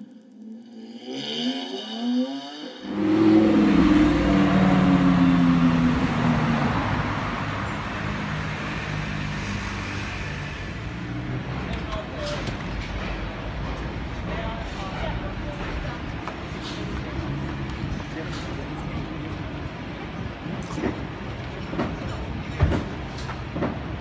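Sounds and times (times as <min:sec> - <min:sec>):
rising tone: 0:00.0 - 0:07.3
car engine noise: 0:00.0 - 0:14.3
traffic noise: 0:02.7 - 0:24.0.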